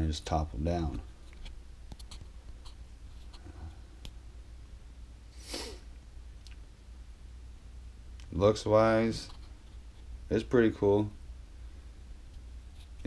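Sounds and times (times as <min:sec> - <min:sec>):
room hum: 0:00.0 - 0:13.0
breathy sniff: 0:05.3 - 0:05.9.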